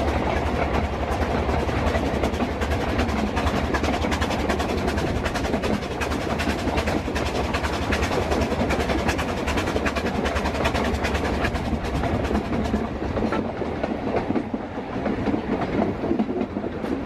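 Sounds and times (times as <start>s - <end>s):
locomotive working uphill: 0.0s - 17.0s
train wheels clattering over track: 0.0s - 17.0s.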